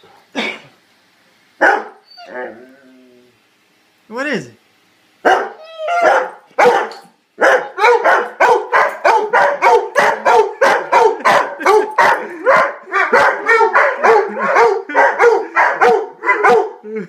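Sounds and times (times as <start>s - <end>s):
dogs barking: 1.6s - 2.0s, 5.2s - 16.8s.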